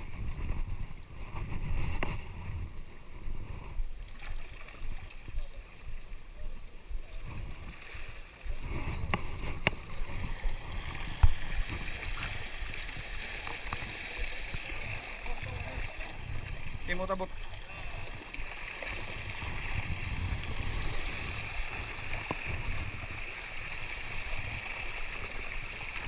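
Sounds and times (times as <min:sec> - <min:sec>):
wind buffeting microphone: 0:08.5 - 0:18.3, 0:19.0 - 0:25.7.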